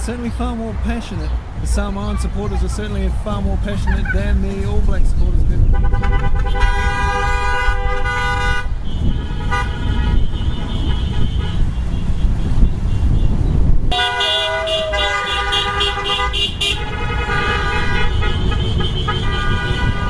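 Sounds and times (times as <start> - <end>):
rumble of passing traffic: 0.0 - 20.0
car horns honking: 5.6 - 20.0.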